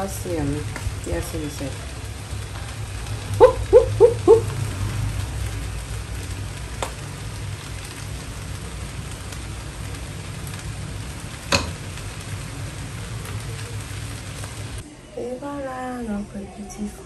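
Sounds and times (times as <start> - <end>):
rice sizzling in a pot: 0.0 - 17.0.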